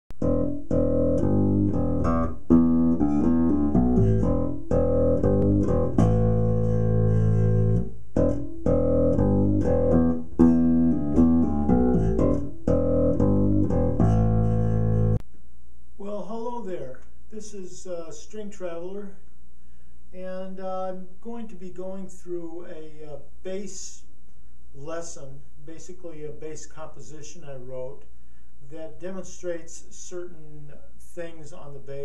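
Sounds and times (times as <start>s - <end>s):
electric bass guitar playing: 0.1s - 15.2s.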